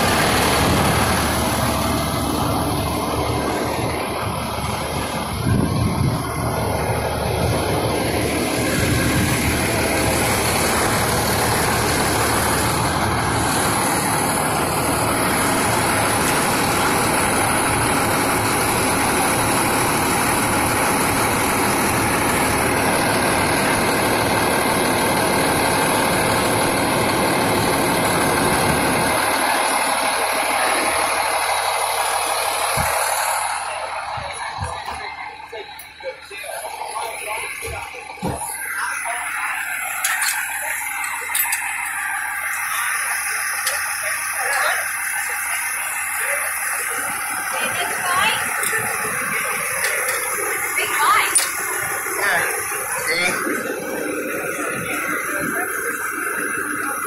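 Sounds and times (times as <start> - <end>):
diesel engine droning: 0.0 - 57.0.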